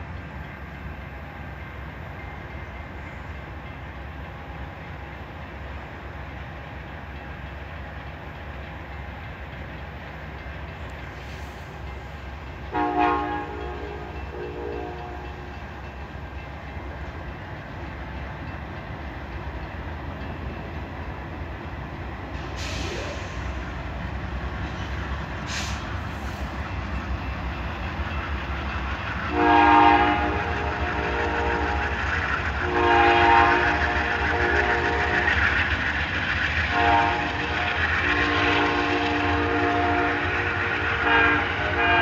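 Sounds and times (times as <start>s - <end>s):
diesel locomotive engine rumble: 0.0s - 42.0s
train horn: 12.7s - 15.6s, 29.3s - 35.7s, 36.6s - 42.0s
short hisses: 22.4s - 23.7s, 25.4s - 26.6s.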